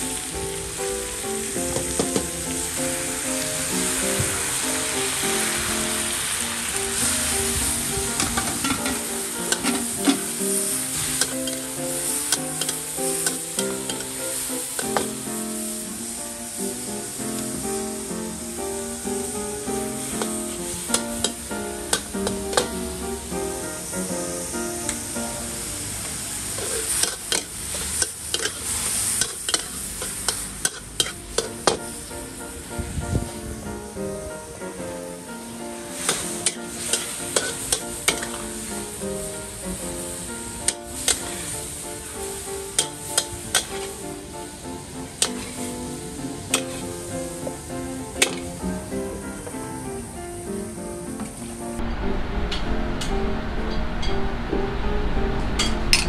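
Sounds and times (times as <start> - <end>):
food sizzling in a wok: 0.0 - 56.0
metal spatula scraping a wok: 8.2 - 15.2, 26.5 - 31.6, 36.1 - 38.4, 46.5 - 47.0.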